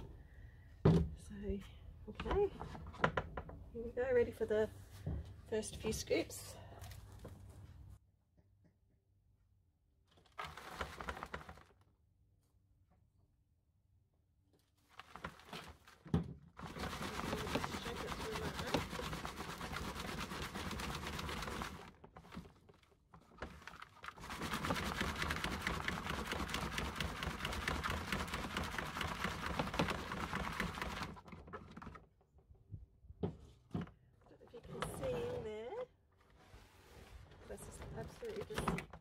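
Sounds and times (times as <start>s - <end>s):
compost rattling through sieve: 10.2s - 11.8s, 14.9s - 31.9s.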